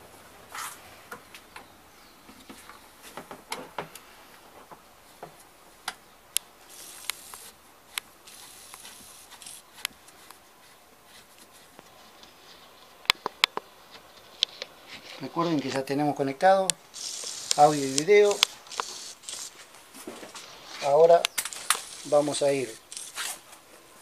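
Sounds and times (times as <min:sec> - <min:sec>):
faint rubbing: 0:06.7 - 0:13.0, 0:17.0 - 0:24.0.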